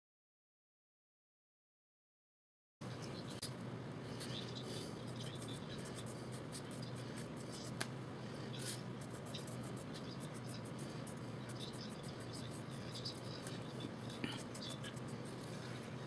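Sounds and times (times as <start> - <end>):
steady low hum: 2.8 - 16.0
drawing tool scratching paper: 4.2 - 7.8, 8.4 - 16.0.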